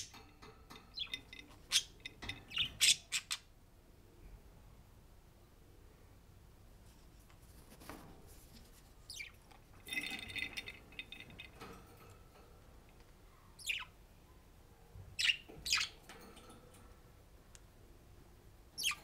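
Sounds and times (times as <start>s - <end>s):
budgerigars chirping: 2.5s - 3.5s, 13.6s - 13.9s, 15.2s - 16.0s, 18.8s - 19.0s.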